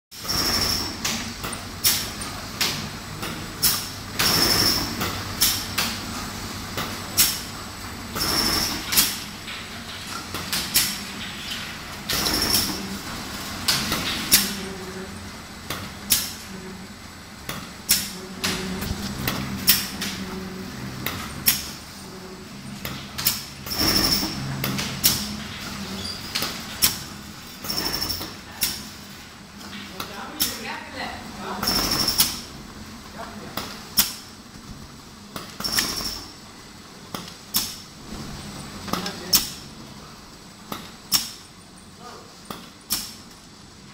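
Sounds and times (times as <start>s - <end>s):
machine motor hum: 11.9s - 26.1s.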